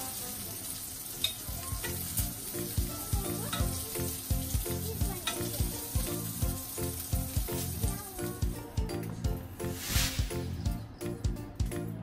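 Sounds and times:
meat sizzling in a frying pan: 0.0s - 8.6s, 9.6s - 10.6s
background music with beat: 4.1s - 12.0s.

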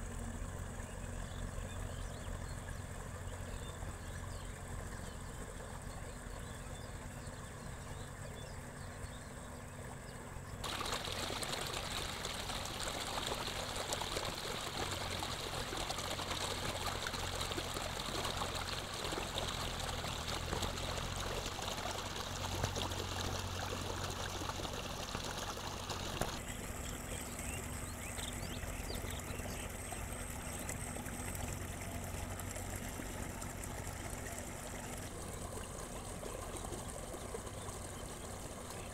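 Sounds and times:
water rushing through channel: 10.6s - 38.9s.

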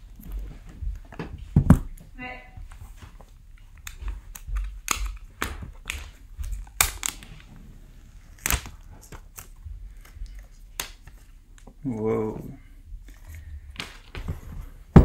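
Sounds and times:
plastic shrink wrap crinkling: 2.8s - 11.9s.

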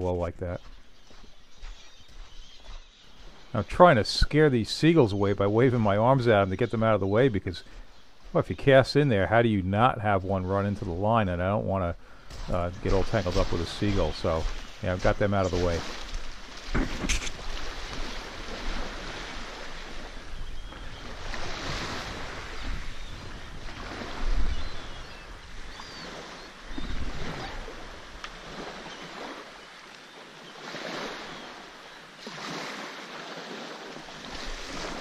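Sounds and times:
wind gusting on microphone: 15.8s - 29.4s.

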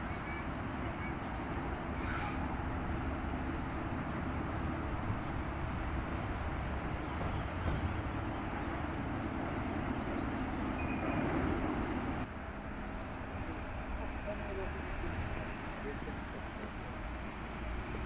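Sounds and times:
low engine rumble: 0.0s - 18.0s.

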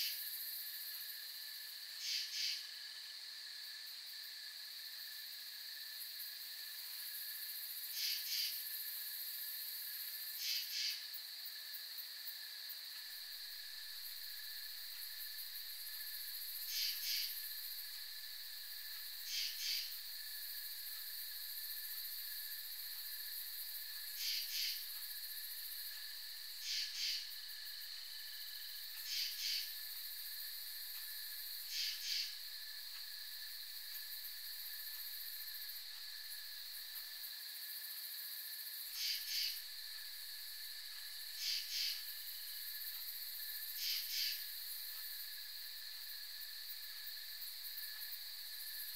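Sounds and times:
insect chorus drone: 0.0s - 48.9s
raspy insect chirps: 2.0s - 2.7s, 7.9s - 8.6s, 10.4s - 11.1s, 13.4s - 36.7s, 38.8s - 40.2s, 40.9s - 48.9s.

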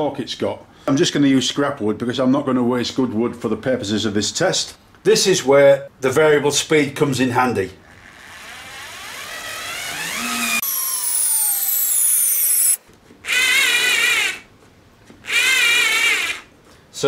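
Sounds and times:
cordless screwdriver whining: 7.9s - 14.4s.

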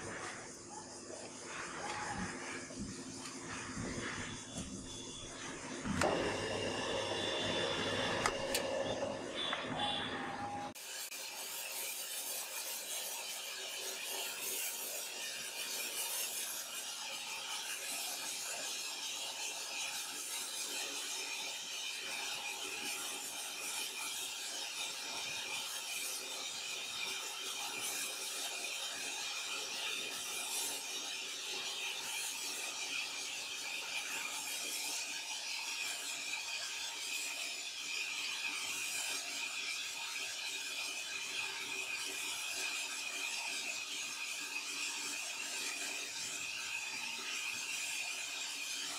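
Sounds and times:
band saw cutting log: 5.8s - 10.1s.

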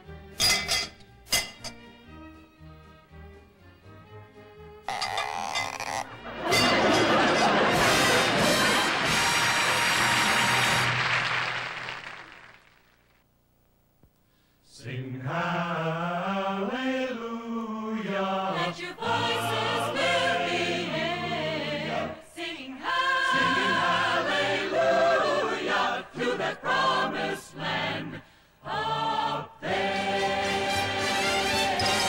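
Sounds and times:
choir singing slow chant: 14.7s - 32.0s.

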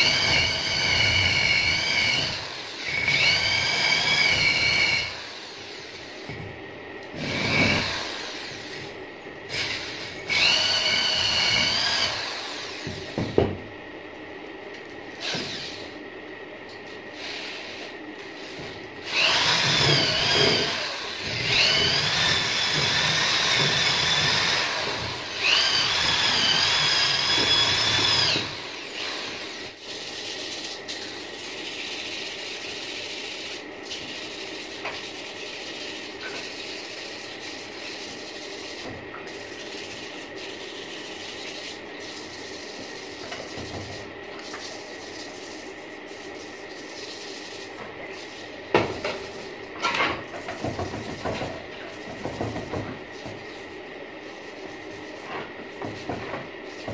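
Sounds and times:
electric drill wire brush whine: 0.0s - 6.5s, 7.1s - 13.4s, 15.1s - 16.0s, 17.1s - 30.2s.

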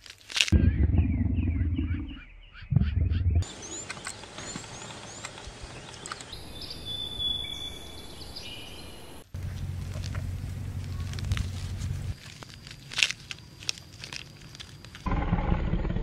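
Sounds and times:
steady low sound: 0.6s - 3.5s, 15.1s - 16.0s
wild birds chirping: 0.6s - 15.2s.

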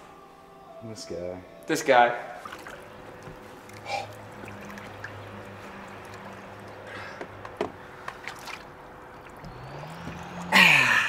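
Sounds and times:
water sloshing and splashing in tub: 2.3s - 10.6s
low hum: 2.4s - 11.0s.

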